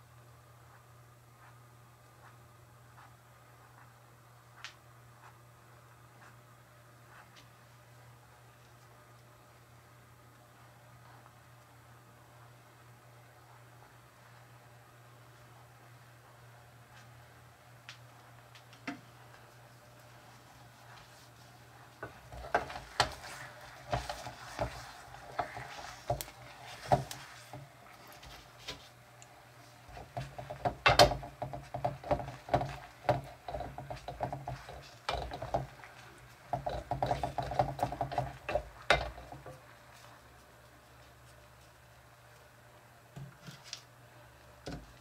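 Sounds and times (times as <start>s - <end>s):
steady low hum: 0.0s - 45.0s
wooden spoon scraping a pot: 22.0s - 28.4s, 29.9s - 39.7s.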